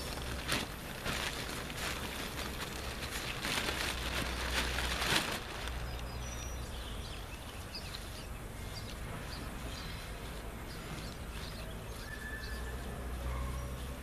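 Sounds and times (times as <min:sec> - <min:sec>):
plastic tarp crinkling: 0:00.0 - 0:06.3.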